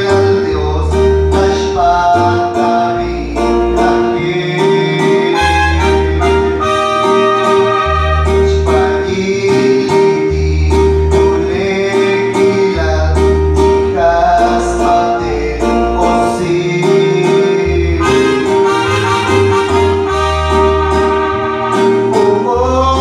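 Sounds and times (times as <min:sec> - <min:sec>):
bass line: 0:00.0 - 0:23.0
gospel music accompaniment: 0:00.0 - 0:23.0
man singing into a microphone: 0:00.0 - 0:23.0.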